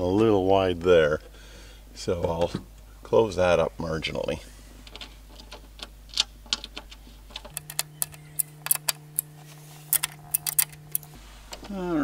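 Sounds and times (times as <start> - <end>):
hand tool metallic clicks: 7.5 - 9.3, 9.9 - 11.1.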